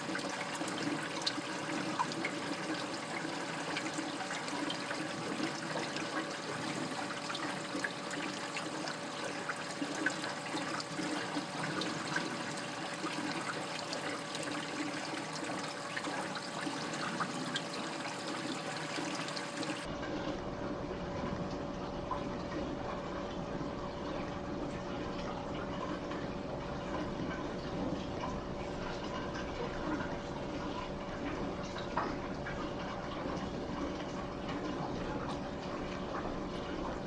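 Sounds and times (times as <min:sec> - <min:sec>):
steady hum: 0:00.0 - 0:26.2
water trickling and splashing: 0:00.0 - 0:37.0.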